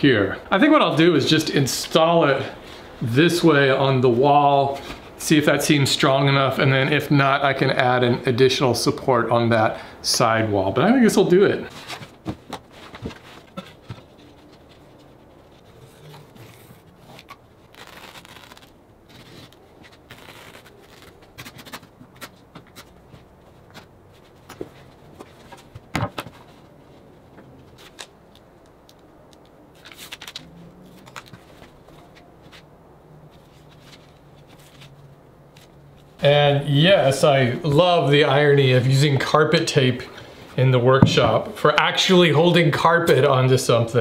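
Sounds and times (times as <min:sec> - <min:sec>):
carpet scraping and rustling: 0:11.6 - 0:28.1, 0:29.8 - 0:39.4.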